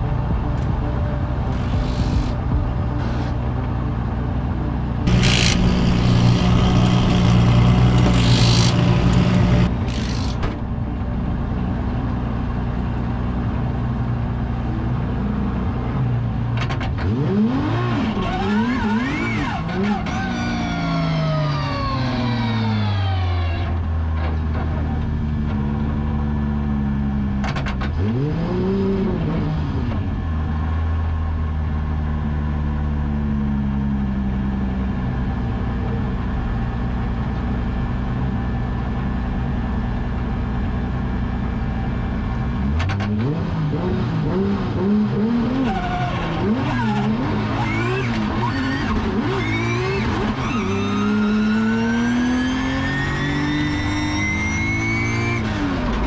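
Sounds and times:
car engine revving: 5.0 - 10.4, 16.6 - 20.3, 42.6 - 56.0.

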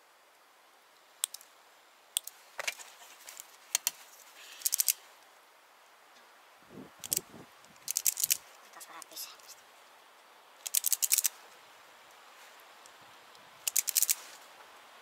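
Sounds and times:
wire pliers clicking and snipping: 1.2 - 1.5, 13.7 - 14.2.

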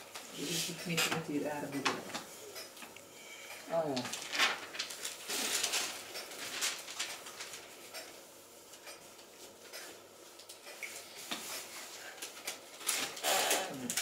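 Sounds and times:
paper rustling and crinkling: 3.8 - 7.8, 11.2 - 13.2.

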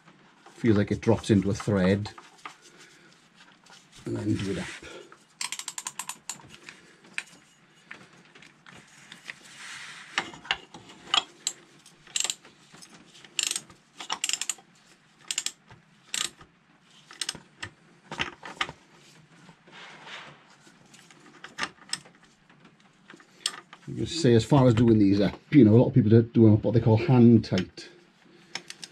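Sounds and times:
soft rubbing: 0.1 - 5.4, 6.8 - 10.4
ratchet clicking: 5.4 - 6.4, 11.4 - 12.4, 13.4 - 14.6, 15.3 - 16.4, 17.1 - 17.4
metallic clicks and knocks: 5.4 - 6.5, 10.2 - 12.5, 13.4 - 14.6.

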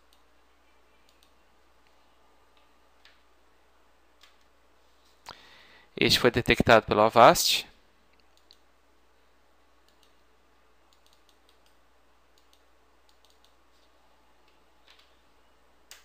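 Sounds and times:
low steady hum: 0.0 - 16.0
computer mouse clicks: 1.1 - 2.0, 8.2 - 8.7, 9.8 - 10.2, 10.9 - 13.6.

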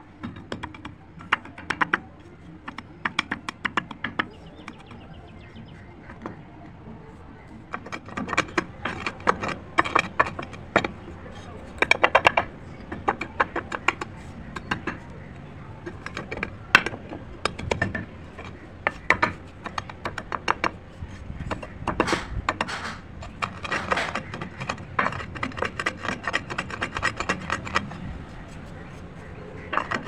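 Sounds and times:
slate pieces crunching and cracking: 7.5 - 30.0
rock grinding over gritty bits: 7.6 - 30.0.

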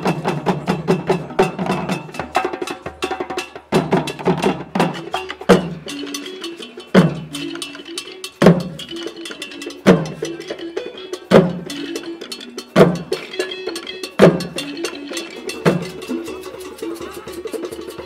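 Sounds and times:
heavy drum strokes: 0.0 - 18.0
xylophone figure: 5.0 - 18.0.

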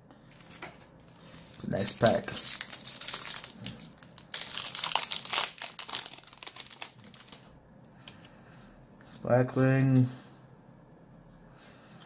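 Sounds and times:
foil wrapper tearing and crinkling: 0.3 - 7.5.

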